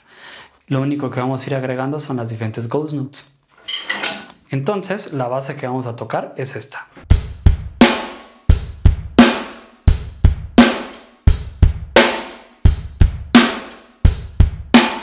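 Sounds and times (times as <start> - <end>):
electronic drum groove: 7.1 - 15.0.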